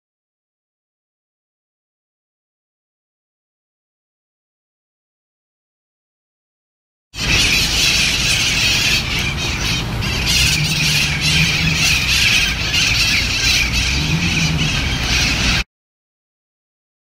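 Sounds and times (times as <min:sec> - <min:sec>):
parrots squawking: 0:07.2 - 0:15.6.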